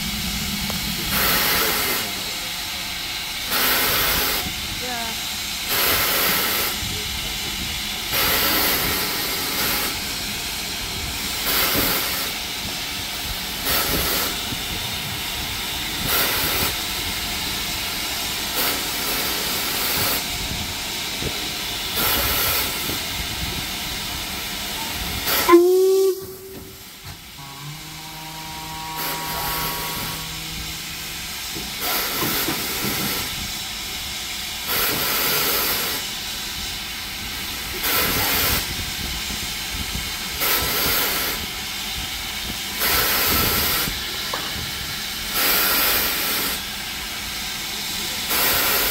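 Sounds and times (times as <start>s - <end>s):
steam locomotive hissing steam: 0.0s - 48.9s
sudden loud steam burst: 0.0s - 48.9s
held tone: 25.5s - 26.8s, 27.4s - 31.7s.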